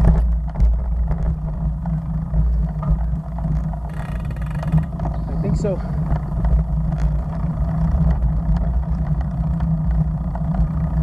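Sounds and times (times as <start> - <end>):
road noise: 0.0 - 11.0.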